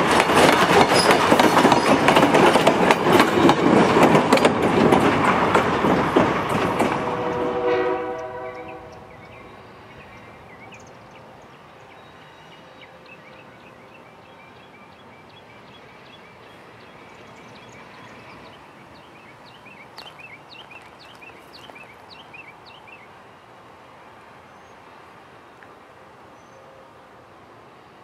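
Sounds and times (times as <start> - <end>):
songbirds chirping: 8.0 - 27.2.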